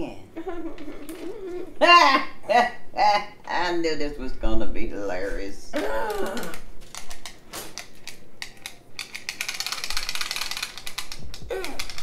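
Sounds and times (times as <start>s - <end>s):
tape measure ratcheting clicks: 6.9s - 12.0s.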